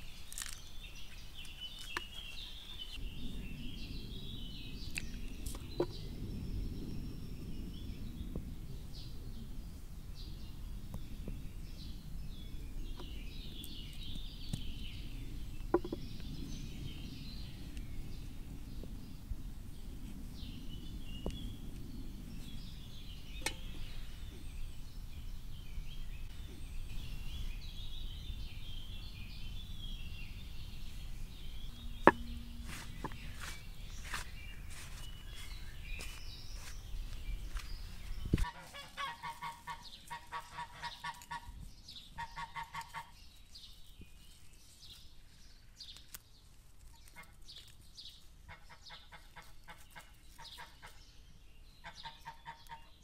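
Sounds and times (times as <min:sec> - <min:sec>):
small birds chirping: 0:00.0 - 0:53.0
low rumble: 0:03.0 - 0:38.4
sharp knock: 0:32.0 - 0:33.4
fowl honking: 0:38.4 - 0:41.5.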